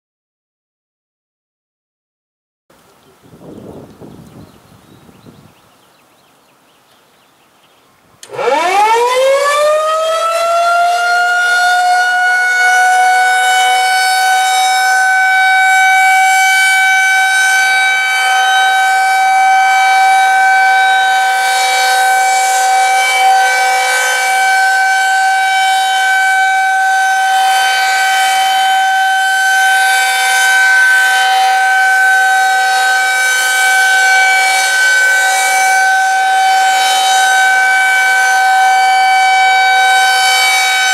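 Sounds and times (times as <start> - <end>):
warning siren high tone: 8.2 - 40.9.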